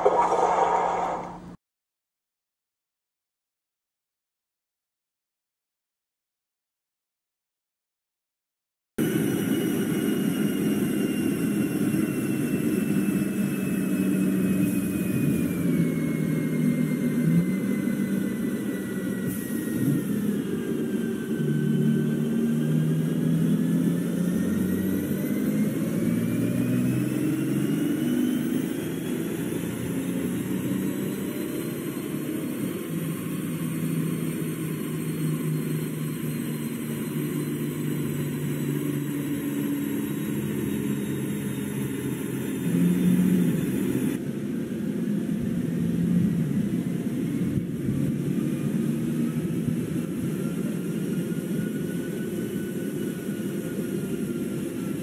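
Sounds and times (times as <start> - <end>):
rising whine: 0.0 - 1.6, 9.0 - 44.8
diesel engine running under load: 9.0 - 55.0.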